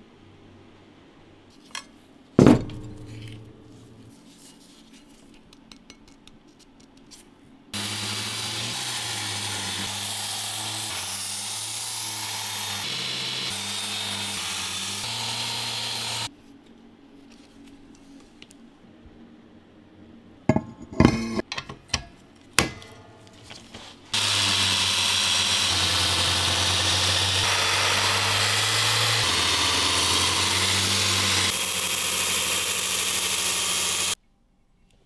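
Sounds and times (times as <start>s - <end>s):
belt grinder grinding steel: 7.8s - 16.3s, 24.1s - 34.2s.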